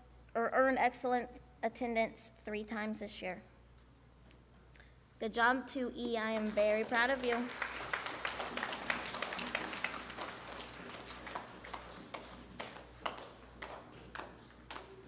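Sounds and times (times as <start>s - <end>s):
audience applause: 6.4s - 15.0s.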